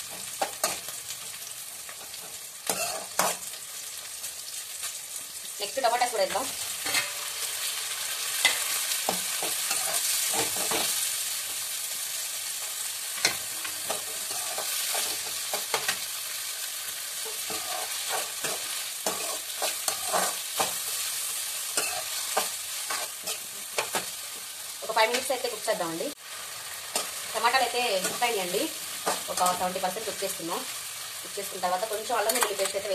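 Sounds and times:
vegetables sizzling in hot oil: 0:00.0 - 0:32.9
spoon scraping a metal pan: 0:02.7 - 0:03.5, 0:06.8 - 0:07.3, 0:08.4 - 0:10.9, 0:13.2 - 0:16.0, 0:17.2 - 0:21.1, 0:21.8 - 0:24.1.

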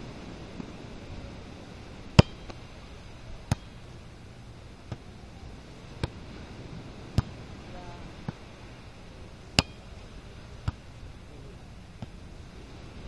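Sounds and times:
steady hiss: 0:00.0 - 0:13.0
volleyball hand slaps: 0:09.6 - 0:09.8.

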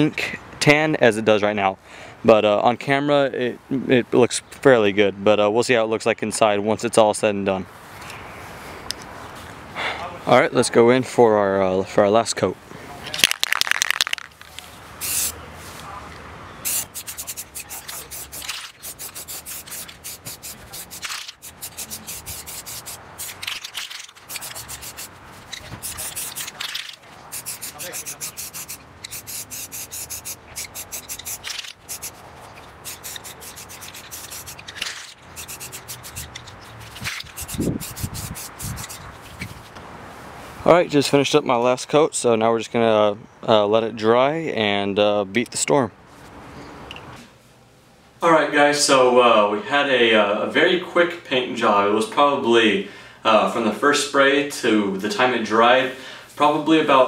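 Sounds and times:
spray paint can hissing: 0:13.5 - 0:14.3, 0:15.0 - 0:15.4, 0:16.6 - 0:32.2, 0:32.8 - 0:39.1.

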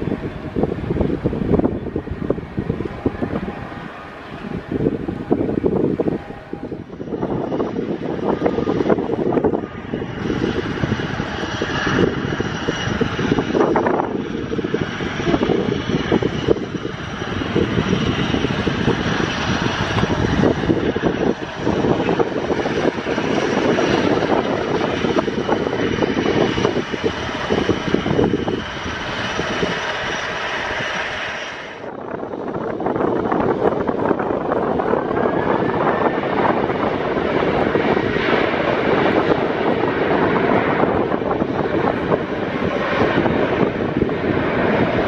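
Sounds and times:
turboprop engines droning: 0:00.0 - 0:45.0
wind buffeting microphone: 0:00.0 - 0:45.0.

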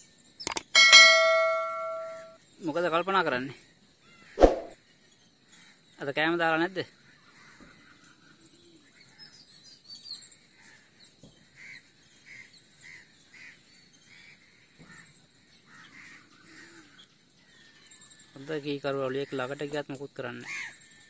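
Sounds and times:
high thin bird chirps: 0:04.4 - 0:04.8.

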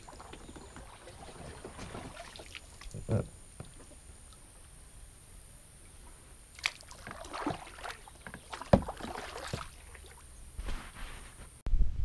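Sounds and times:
paddle strokes splashing water: 0:00.0 - 0:03.0, 0:06.0 - 0:10.3.

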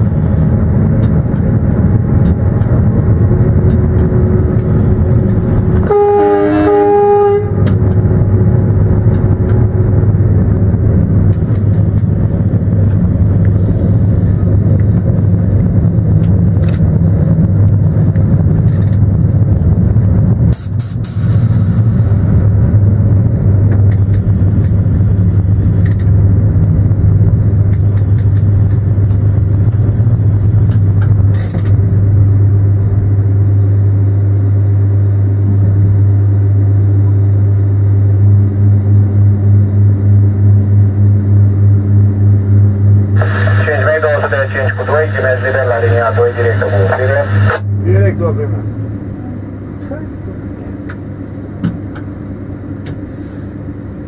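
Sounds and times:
train running drone: 0:00.0 - 0:54.0
train horn: 0:05.8 - 0:07.8.

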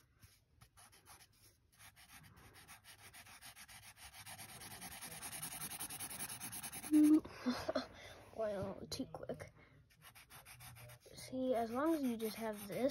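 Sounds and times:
marker scribbling on paper: 0:00.0 - 0:07.2, 0:09.9 - 0:12.9.

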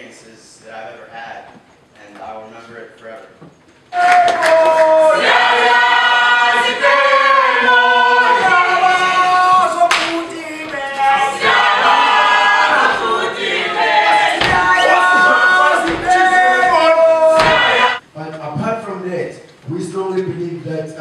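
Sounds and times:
young voices singing a cappella: 0:04.8 - 0:09.9, 0:10.7 - 0:18.0.

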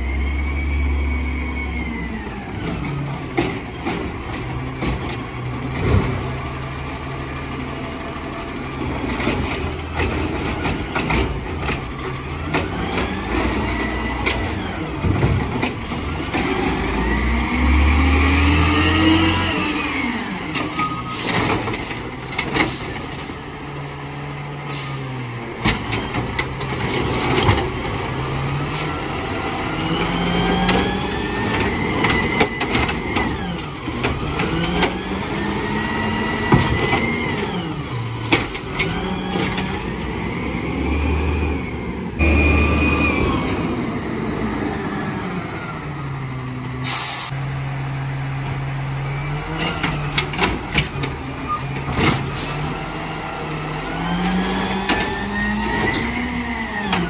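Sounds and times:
garbage truck engine: 0:00.0 - 0:57.0
air brakes hissing: 0:24.6 - 0:25.2, 0:45.6 - 0:47.4.

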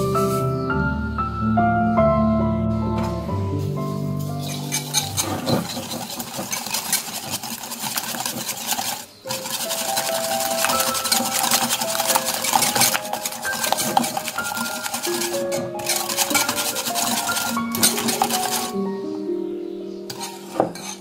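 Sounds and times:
whisk clicking against bowl: 0:04.4 - 0:18.8, 0:20.1 - 0:21.0.

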